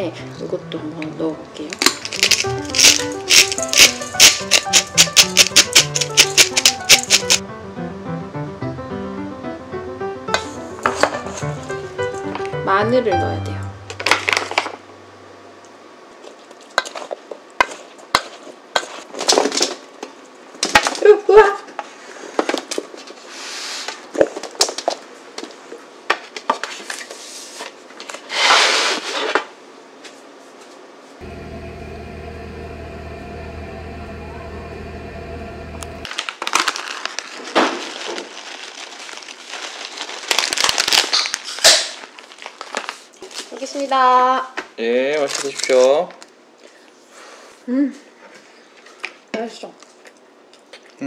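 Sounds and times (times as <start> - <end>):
electric oven humming: 0.0 - 16.5, 31.1 - 36.2
parchment and plastic bag crinkling: 1.7 - 7.4, 36.1 - 43.9, 45.0 - 46.4
vegetables scraped onto baking sheet: 27.2 - 29.4.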